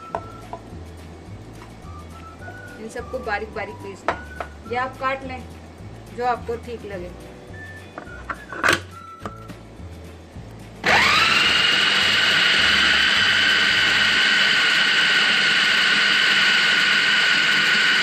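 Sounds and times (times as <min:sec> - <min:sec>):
food chopper motor whirring: 0:10.8 - 0:18.0.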